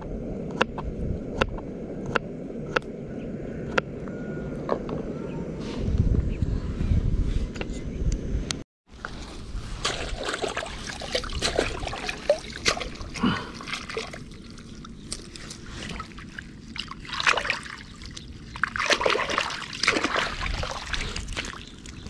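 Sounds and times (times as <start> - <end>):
water splashing and sloshing: 8.8 - 22.0.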